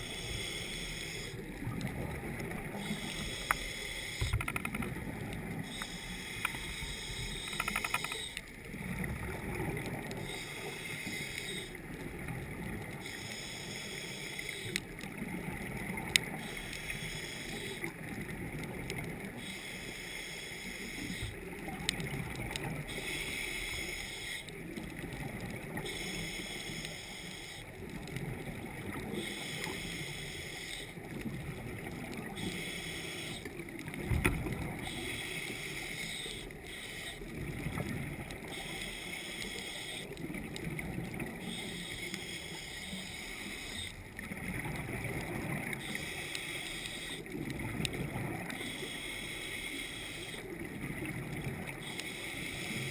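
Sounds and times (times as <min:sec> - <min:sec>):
regulator breathing hiss: 0:00.0 - 0:01.4, 0:02.7 - 0:04.6, 0:05.6 - 0:08.4, 0:10.2 - 0:11.8, 0:13.0 - 0:14.8, 0:16.4 - 0:17.9, 0:19.4 - 0:21.5, 0:22.9 - 0:24.5, 0:25.8 - 0:27.7, 0:29.1 - 0:31.0, 0:32.3 - 0:33.6, 0:34.8 - 0:37.3, 0:38.4 - 0:40.2, 0:41.4 - 0:44.0, 0:45.7 - 0:47.3, 0:48.6 - 0:50.6, 0:51.7 - 0:52.9.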